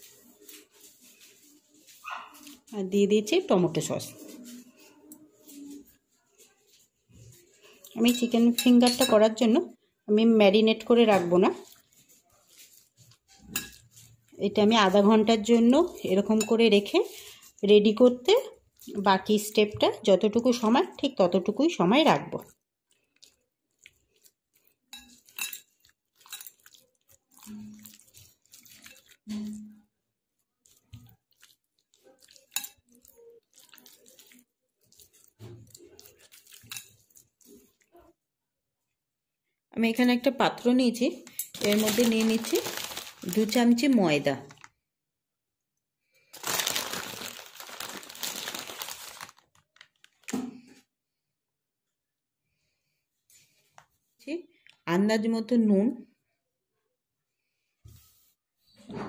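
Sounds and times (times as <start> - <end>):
flour spooned into steel tray: 10.8 - 17.6, 23.2 - 29.7, 30.6 - 38.0.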